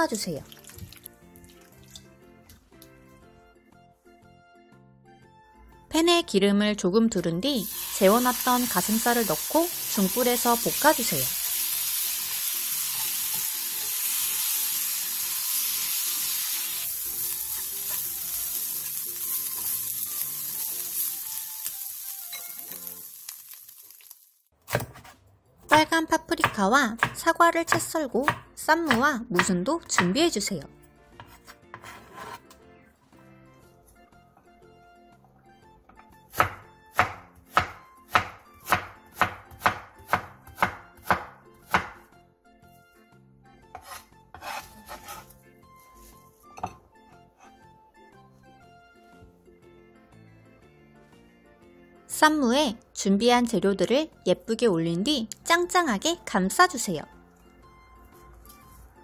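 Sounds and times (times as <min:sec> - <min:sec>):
faint background music: 0:00.0 - 0:23.2, 0:24.7 - 0:59.0
meat sizzling in a frying pan: 0:07.6 - 0:24.4
knife chopping on wooden board: 0:24.6 - 0:30.2, 0:35.9 - 0:42.0, 0:43.7 - 0:45.3.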